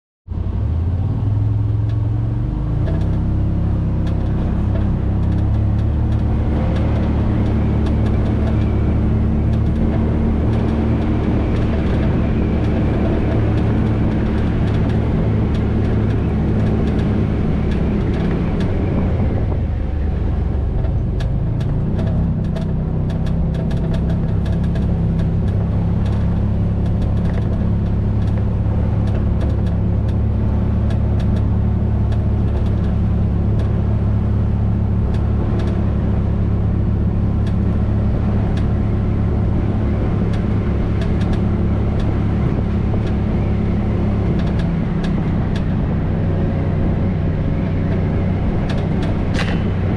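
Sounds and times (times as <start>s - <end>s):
vehicle engine running: 0.3s - 49.9s
tyres rolling on dirt road: 2.6s - 49.9s.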